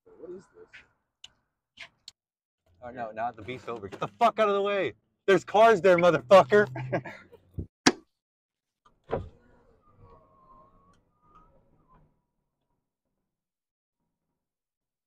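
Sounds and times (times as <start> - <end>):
truck door shutting with thud: 9.0 - 9.4.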